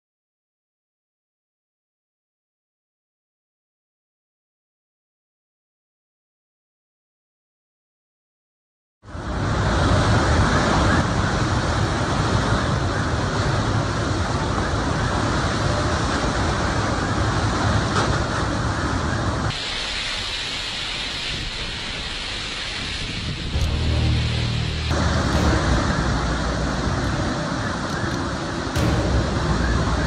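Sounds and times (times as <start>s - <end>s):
strong wind and driving rain: 9.0s - 30.0s.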